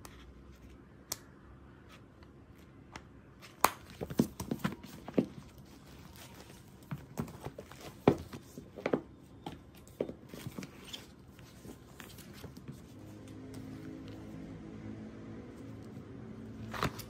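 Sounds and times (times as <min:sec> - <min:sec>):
book covers rustling: 0:03.4 - 0:14.4, 0:16.5 - 0:17.0
books knocking on glass table: 0:06.8 - 0:09.1.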